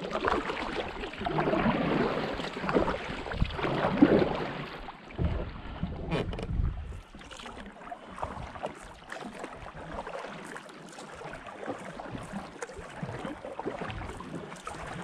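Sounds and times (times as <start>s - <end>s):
kayak paddle splashing in water: 0.0s - 15.0s
low rumble: 5.1s - 7.1s.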